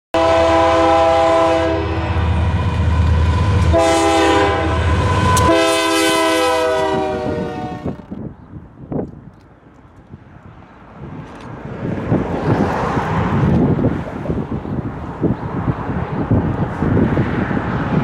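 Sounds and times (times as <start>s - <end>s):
train air horn blasts: 0.1s - 8.1s
low rumble of approaching train: 0.2s - 18.0s.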